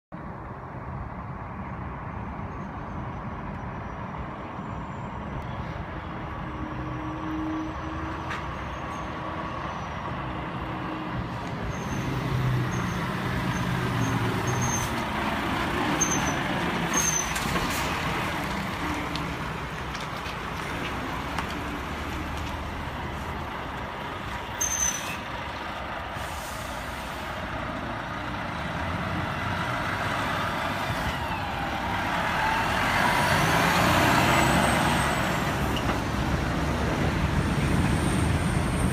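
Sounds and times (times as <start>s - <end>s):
lorry diesel engines driving past: 0.2s - 38.9s
air brakes squeaking and hissing: 4.7s - 10.0s, 10.9s - 15.1s, 15.9s - 18.0s, 24.5s - 25.4s, 26.0s - 27.5s.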